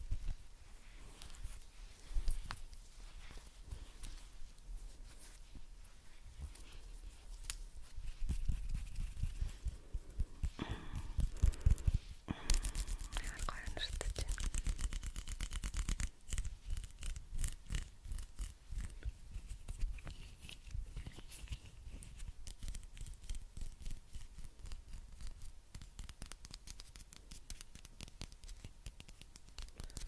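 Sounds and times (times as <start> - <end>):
fingers scratching on microphone: 7.4 - 10.5, 12.6 - 23.4.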